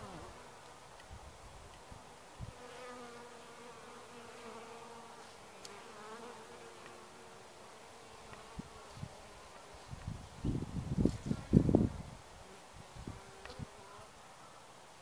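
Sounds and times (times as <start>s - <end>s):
bees buzzing: 0.0s - 0.7s, 2.6s - 9.9s.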